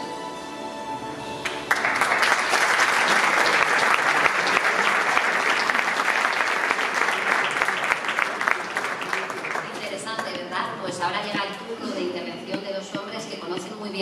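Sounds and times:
music: 0:00.0 - 0:03.3
audience applauding: 0:01.4 - 0:10.4.

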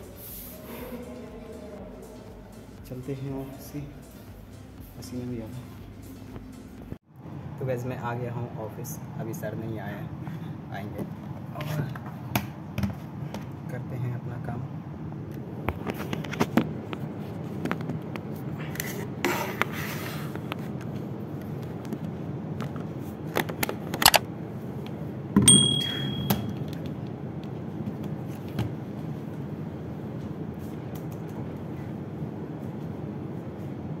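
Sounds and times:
steady low hum: 0:00.0 - 0:34.0
short electronic beep: 0:25.5 - 0:26.6.

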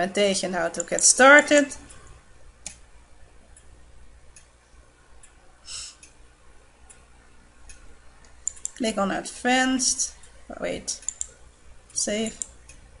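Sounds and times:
low steady hum: 0:00.0 - 0:13.0
computer mouse clicks: 0:00.8 - 0:01.1, 0:07.6 - 0:08.9, 0:11.0 - 0:11.4, 0:12.2 - 0:12.8.

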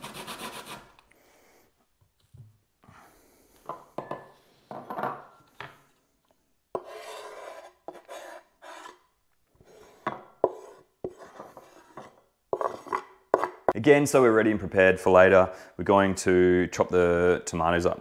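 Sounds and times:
knife scraping wooden board: 0:06.8 - 0:13.7.

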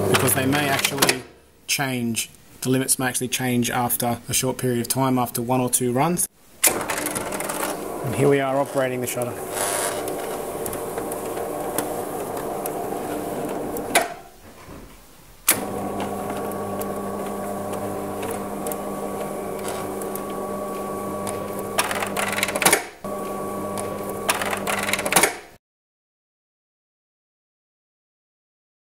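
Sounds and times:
shutter motor humming: 0:09.2 - 0:14.0, 0:15.5 - 0:25.2.

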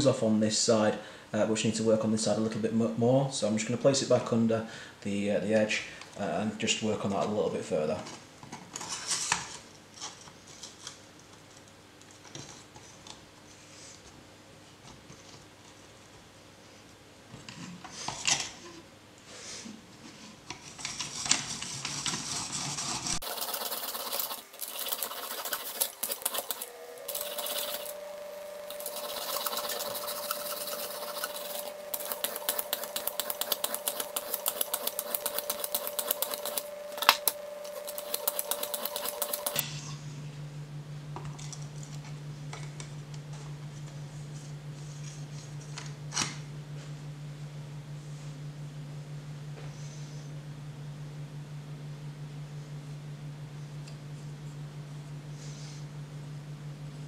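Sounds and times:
sharpening stone scraping knife: 0:28.7 - 0:36.6.

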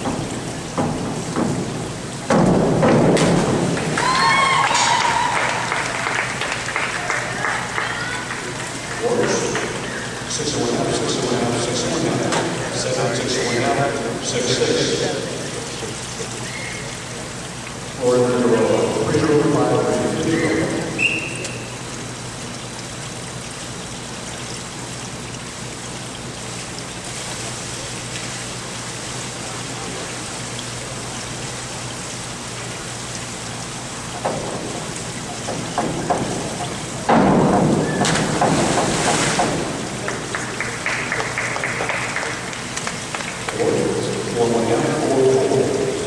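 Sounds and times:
indoor pool hall background noise: 0:00.0 - 0:46.0
applause: 0:03.7 - 0:09.8, 0:40.0 - 0:43.6
people clapping: 0:03.7 - 0:09.9, 0:39.9 - 0:43.8
diver splashing into pool: 0:35.9 - 0:42.5.

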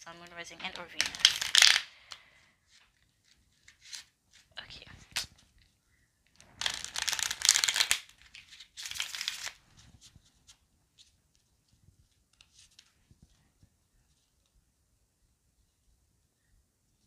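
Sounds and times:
cards tapping: 0:00.7 - 0:02.2, 0:06.6 - 0:09.5
cards shuffling flutter: 0:00.7 - 0:05.7, 0:06.3 - 0:11.1.

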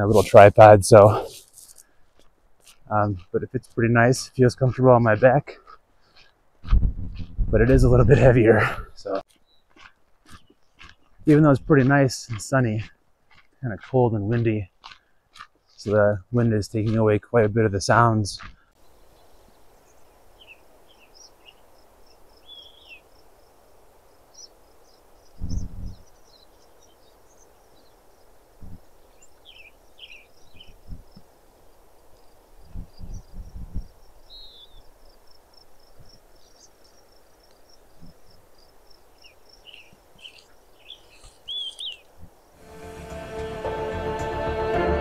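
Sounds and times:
small birds chirping: 0:00.0 - 0:42.6
wind buffeting microphone: 0:06.6 - 0:09.2, 0:25.3 - 0:26.2, 0:28.6 - 0:31.2, 0:32.6 - 0:34.0.

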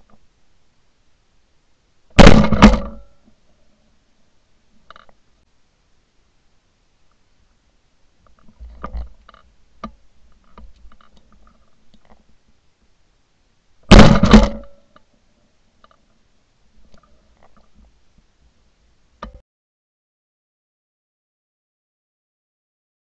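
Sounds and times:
shotgun shot: 0:02.2 - 0:03.1, 0:13.9 - 0:14.8.

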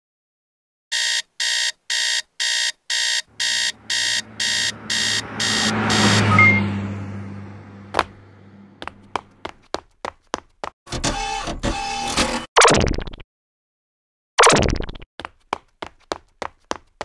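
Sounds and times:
alarm clock beeping: 0:00.9 - 0:06.9
low rushing swell: 0:03.3 - 0:09.1.

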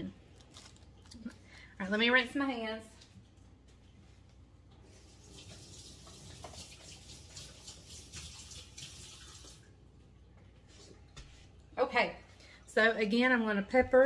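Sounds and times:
faucet running: 0:04.9 - 0:09.8.

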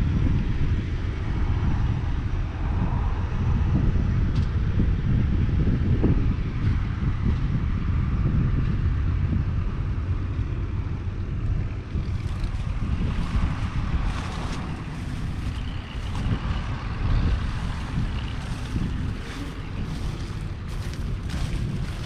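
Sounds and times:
wind buffeting microphone: 0:00.0 - 0:22.0
diesel engine idling: 0:10.1 - 0:22.0.

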